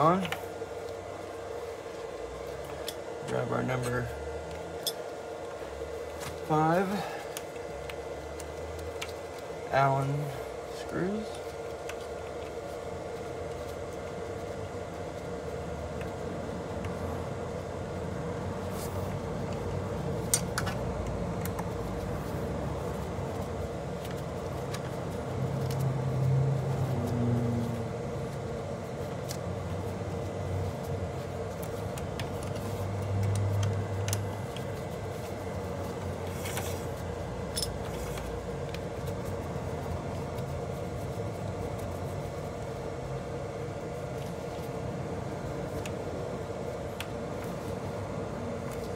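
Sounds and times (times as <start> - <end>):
background hum: 0.0 - 48.9.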